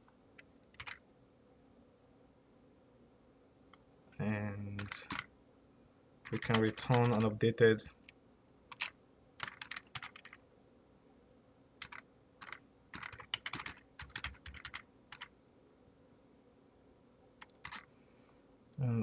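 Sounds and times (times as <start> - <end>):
typing on computer keyboard: 0.7 - 1.0, 4.8 - 5.3, 6.2 - 7.4, 8.7 - 10.4, 11.8 - 15.3, 17.4 - 17.9.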